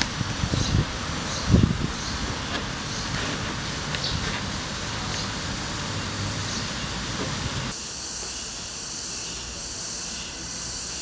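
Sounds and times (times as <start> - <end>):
wind: 0.0 - 11.0
quiet hiss with high-pitched band: 4.5 - 11.0.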